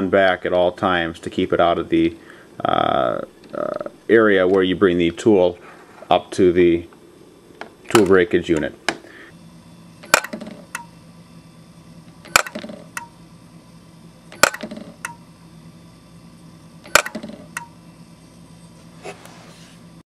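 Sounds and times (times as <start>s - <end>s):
low steady hum: 0.0s - 20.0s
sharp mechanical click: 10.0s - 10.9s, 12.2s - 13.1s, 14.3s - 15.2s, 16.8s - 17.7s.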